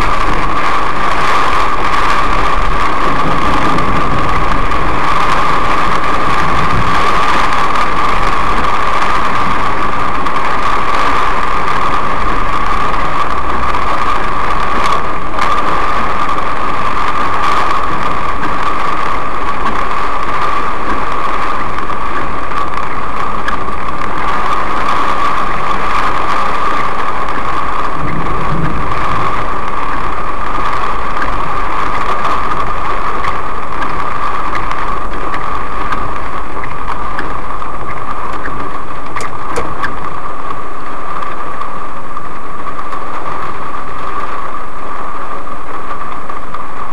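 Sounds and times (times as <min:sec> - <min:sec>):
car engine and road noise: 0:00.0 - 0:46.9
heavy rain on car roof: 0:00.0 - 0:46.9
low rumble: 0:00.0 - 0:46.9.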